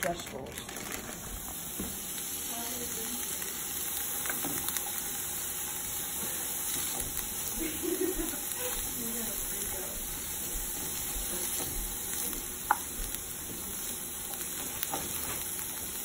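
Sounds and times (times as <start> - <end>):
vegetables sizzling in oil: 0.0 - 16.0.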